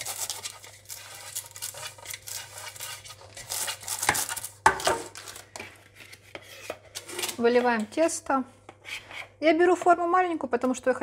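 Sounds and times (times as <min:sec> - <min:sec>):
parchment paper rustling: 0:00.0 - 0:07.8.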